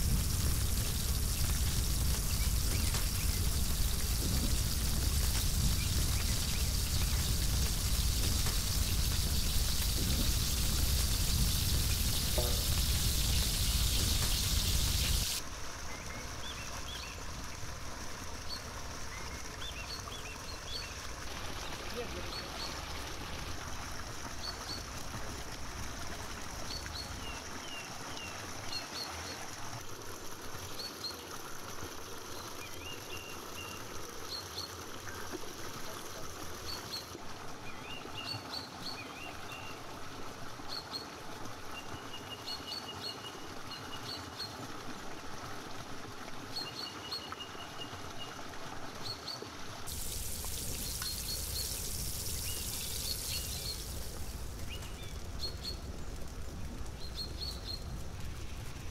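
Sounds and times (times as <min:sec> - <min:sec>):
loud steady hiss: 0:00.0 - 0:37.2, 0:49.8 - 0:58.9
water trickling in stone channel: 0:00.0 - 0:58.9
small birds chirping: 0:00.2 - 0:15.4, 0:49.0 - 0:56.2.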